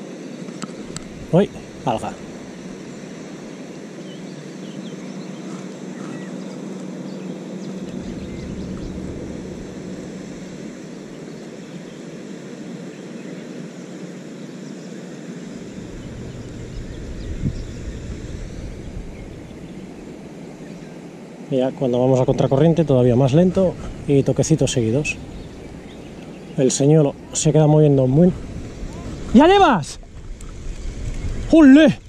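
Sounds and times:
wind rumbling on microphone: 0:00.6 - 0:03.8, 0:07.2 - 0:13.0, 0:15.2 - 0:32.0
faint bird chirps: 0:02.8 - 0:12.1, 0:21.9 - 0:28.0.

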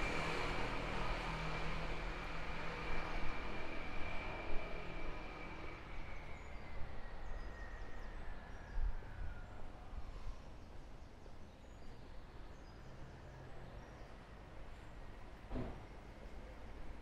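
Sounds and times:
passing vehicle whine: 0:00.0 - 0:10.5
low traffic rumble: 0:00.0 - 0:17.0.

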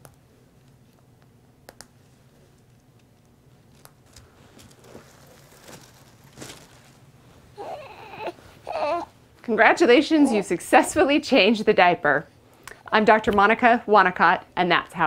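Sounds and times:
clothes rustling: 0:03.6 - 0:11.2
infant vocalisation: 0:07.6 - 0:09.1, 0:09.9 - 0:10.9.

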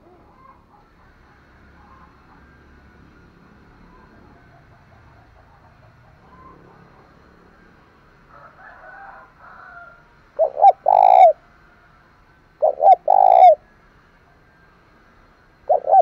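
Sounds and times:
dove cooing: 0:00.0 - 0:01.2, 0:10.4 - 0:11.4, 0:12.6 - 0:13.7, 0:15.6 - 0:16.0.

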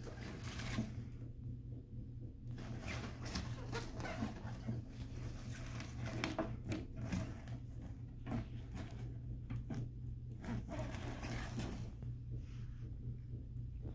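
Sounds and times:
steady low hum: 0:00.0 - 0:13.9
cardboard box scraping on wood floor: 0:10.4 - 0:11.9.

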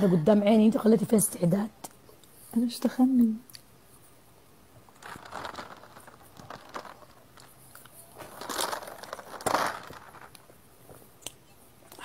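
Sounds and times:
plastic bottle crinkling: 0:04.8 - 0:10.6.

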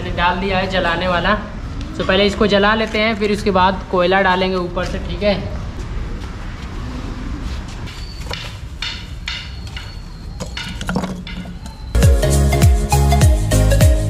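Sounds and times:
outdoor background noise: 0:00.0 - 0:12.0
upbeat background music: 0:12.0 - 0:14.0.

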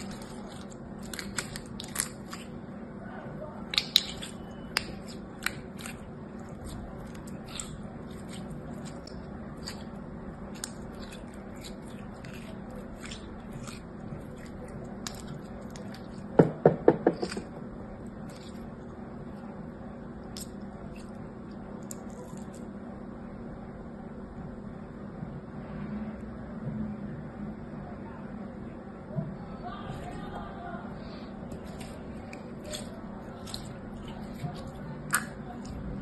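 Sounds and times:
slime clicking and popping: 0:00.0 - 0:02.5, 0:03.7 - 0:06.0, 0:35.1 - 0:35.8.

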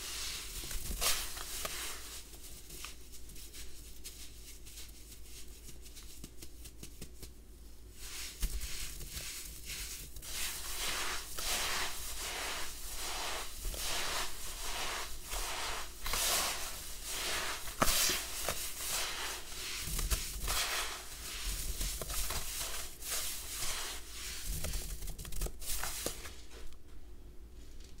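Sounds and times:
hands kneading damp sand: 0:00.0 - 0:26.8.

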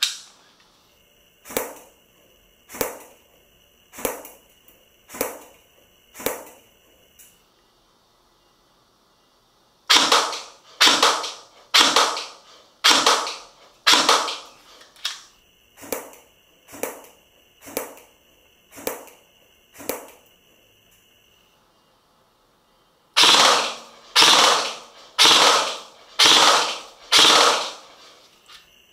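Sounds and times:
airsoft gun single shots: 0:09.9 - 0:14.6, 0:23.2 - 0:28.2.

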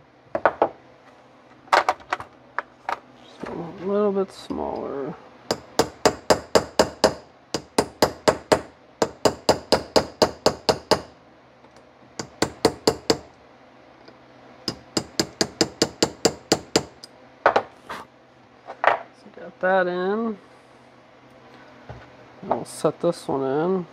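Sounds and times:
small hammer tapping metal: 0:05.5 - 0:11.1, 0:14.7 - 0:17.0.

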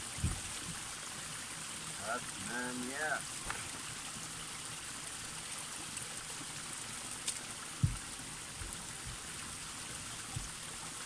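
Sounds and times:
water trickling down rock: 0:00.0 - 0:11.0
dull low thumps: 0:00.1 - 0:00.5, 0:07.8 - 0:09.5, 0:10.2 - 0:10.6.

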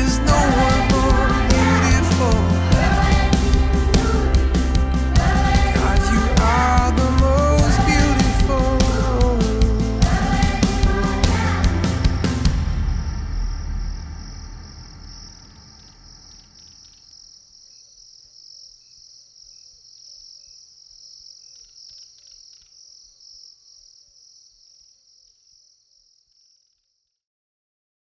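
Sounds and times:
song: 0:00.0 - 0:14.2
crickets chirping: 0:11.4 - 0:27.0.

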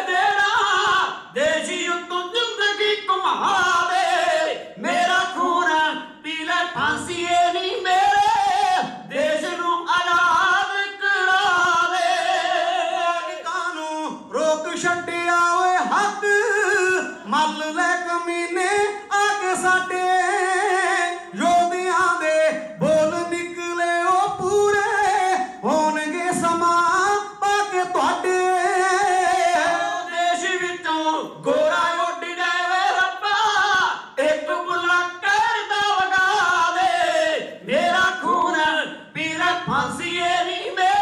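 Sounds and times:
men singing a ballad: 0:00.0 - 0:41.0.

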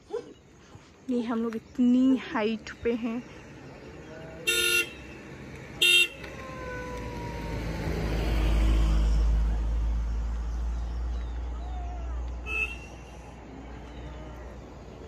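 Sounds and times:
motor vehicle passing: 0:02.8 - 0:15.0
vehicle horn tooting: 0:04.5 - 0:05.0, 0:05.8 - 0:06.3, 0:12.4 - 0:13.0.

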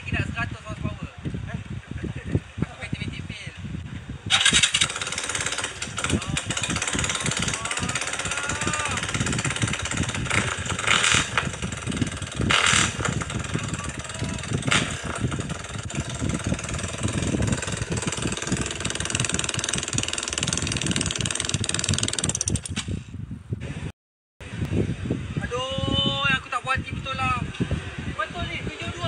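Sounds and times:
motorcycle engine running loudly: 0:04.3 - 0:22.8.

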